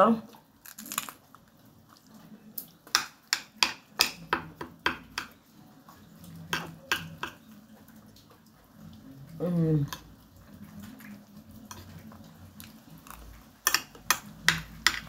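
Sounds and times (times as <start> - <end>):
chewing: 0.3 - 2.8, 9.8 - 14.7.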